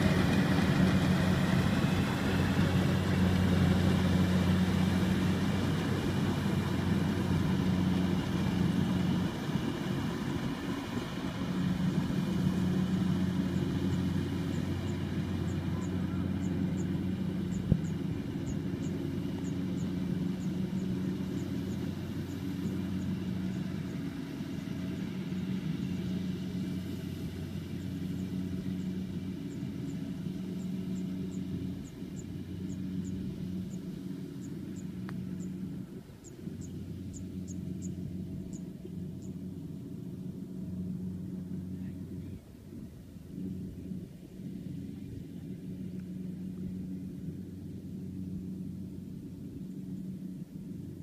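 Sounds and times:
harvester engine humming: 0:00.0 - 0:51.0.

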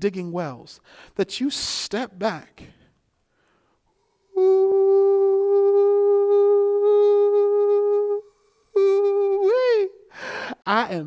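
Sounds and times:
man humming a long note: 0:04.3 - 0:10.0.

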